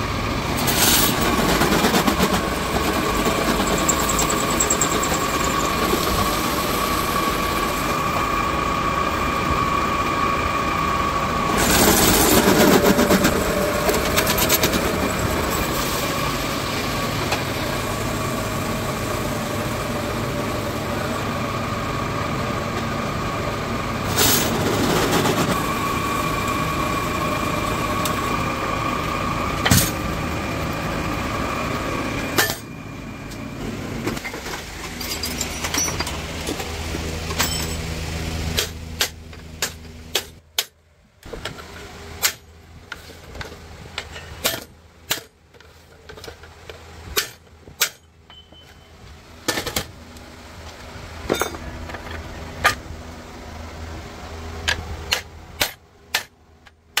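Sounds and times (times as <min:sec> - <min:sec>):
workshop machine whining: 0:00.0 - 0:40.6.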